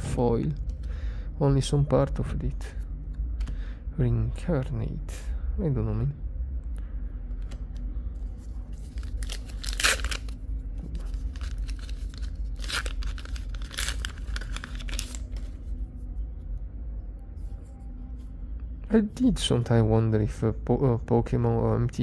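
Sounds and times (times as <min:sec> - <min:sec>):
paper wrapper tearing and crinkling: 0:08.6 - 0:15.7.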